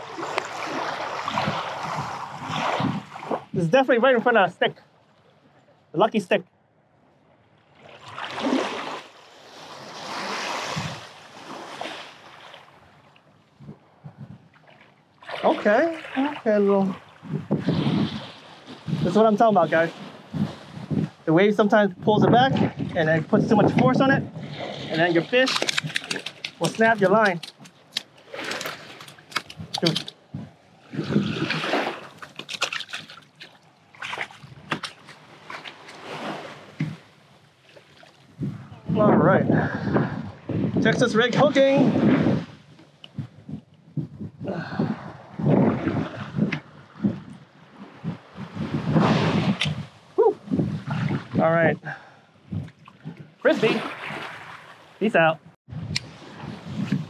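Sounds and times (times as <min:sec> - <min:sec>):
feet splashing through water: 0:00.0 - 0:03.5, 0:07.8 - 0:12.8, 0:14.5 - 0:16.4, 0:24.6 - 0:30.1, 0:30.9 - 0:38.3, 0:52.6 - 0:55.0
small waves on sandy beach: 0:00.0 - 0:04.0, 0:07.7 - 0:21.3, 0:22.4 - 0:39.0, 0:44.6 - 0:51.4, 0:52.8 - 0:55.1, 0:56.0 - 0:57.0
surf washing over sand: 0:08.3 - 0:12.7, 0:15.3 - 0:25.6, 0:47.8 - 0:51.7.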